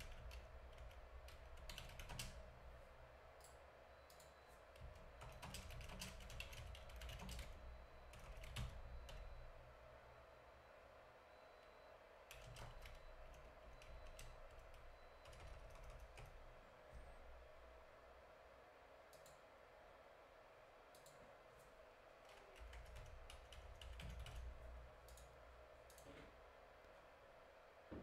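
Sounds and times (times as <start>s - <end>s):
faint keyboard typing: 0.0s - 2.6s, 3.3s - 9.6s, 12.3s - 17.5s, 19.0s - 19.5s, 20.9s - 27.0s.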